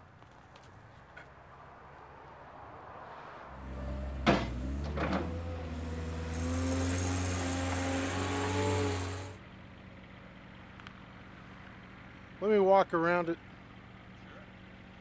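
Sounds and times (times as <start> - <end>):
diesel engine running: 3.5 - 15.0.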